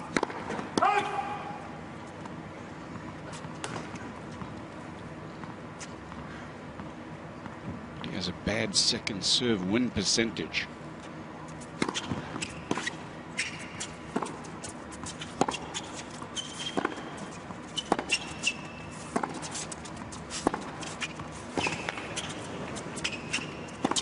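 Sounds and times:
tennis ball bouncing: 0.1s - 0.9s, 15.2s - 19.5s, 23.0s - 24.0s
racquet hitting tennis ball: 0.1s - 1.2s
shoes squeaking on court: 11.0s - 24.0s.

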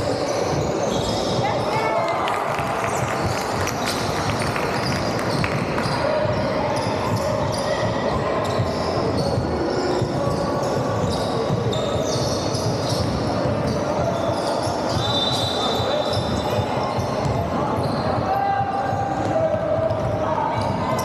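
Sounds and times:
sneakers squeaking: 0.0s - 21.0s.

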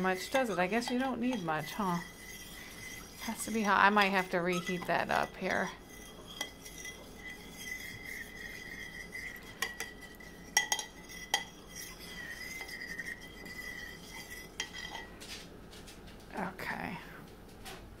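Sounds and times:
metal spoon scraping ceramic bowl: 0.0s - 15.2s
spoon clinking on bowl: 6.0s - 15.1s.

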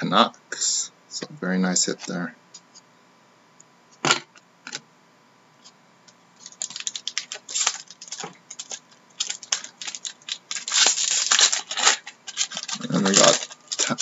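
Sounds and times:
card packaging clicks and crackles: 6.4s - 14.0s.

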